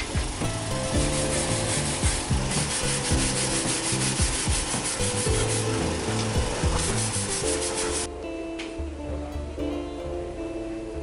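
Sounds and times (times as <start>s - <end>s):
abrasive scrubbing metal: 0.0s - 8.1s
background music: 0.0s - 11.0s.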